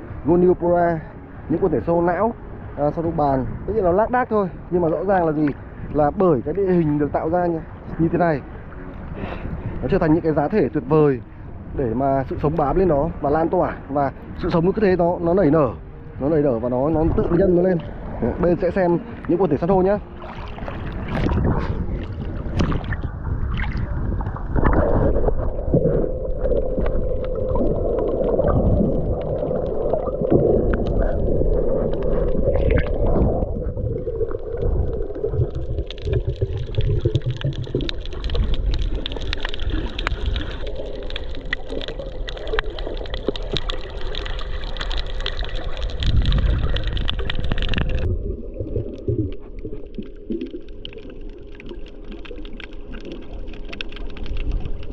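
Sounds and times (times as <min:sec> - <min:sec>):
muffled underwater noise: 0:06.6 - 0:48.1
splash and bubbling: 0:16.9 - 0:54.9.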